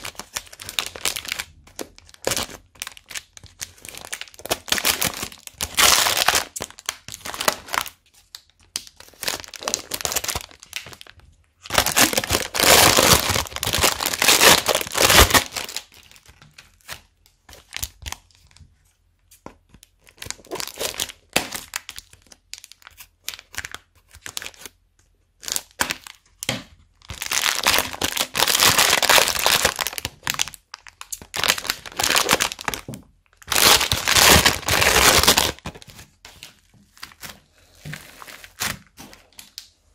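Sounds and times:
plastic bags crinkling: 0.0s - 16.4s, 20.1s - 24.7s, 27.0s - 39.7s.

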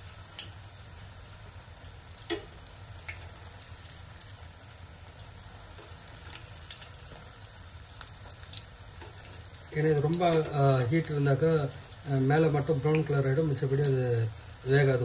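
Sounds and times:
batter deep-frying in oil: 0.0s - 15.0s
steel spoon clicking on pan: 2.2s - 2.5s.

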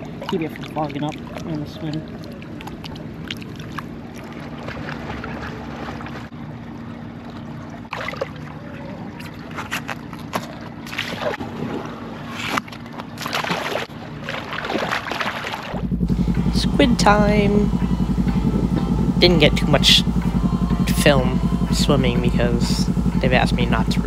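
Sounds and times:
feet kicking and splashing water: 0.0s - 6.4s, 7.2s - 15.9s
low hum: 13.8s - 24.0s.

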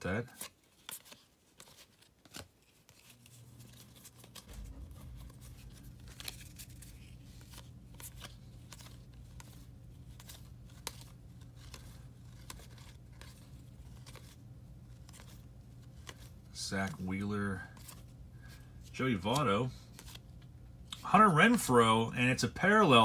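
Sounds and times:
cards flipped by hand: 0.3s - 17.0s, 17.6s - 21.1s
low steady hum: 2.9s - 23.0s
deep rumble: 4.4s - 7.4s.

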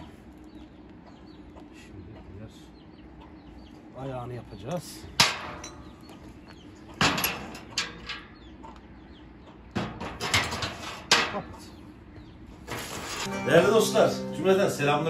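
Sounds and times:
steel rods clanking together: 5.2s - 6.0s, 7.0s - 8.4s, 9.8s - 11.7s, 12.6s - 13.5s.

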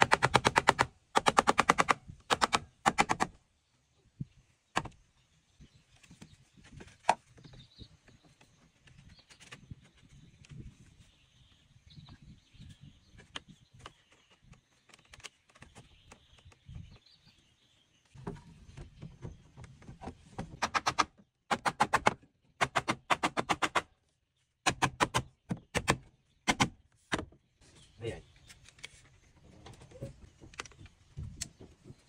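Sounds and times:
hatchet chopping bamboo: 0.0s - 3.3s, 20.6s - 23.9s, 24.6s - 27.2s
faint bird chirps: 3.7s - 19.4s.

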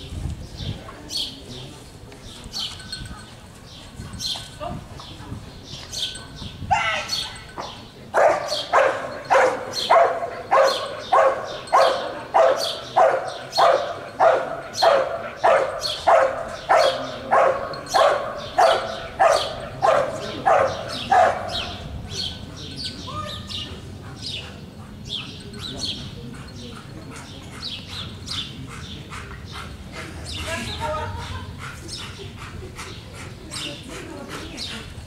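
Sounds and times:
dog barking: 7.6s - 21.9s.

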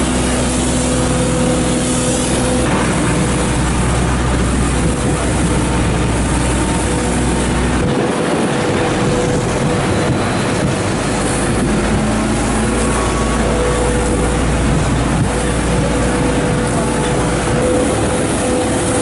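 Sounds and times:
truck engine and pump humming: 0.0s - 19.0s.

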